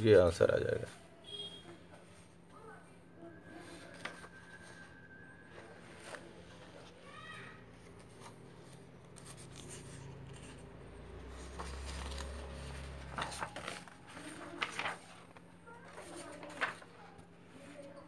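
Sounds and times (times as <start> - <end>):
paper sheets rubbing and rustling: 7.8 - 17.9.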